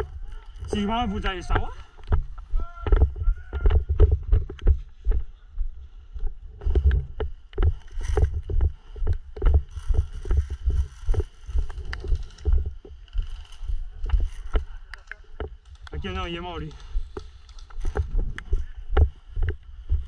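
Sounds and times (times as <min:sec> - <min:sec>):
rustling: 0:06.6 - 0:18.8.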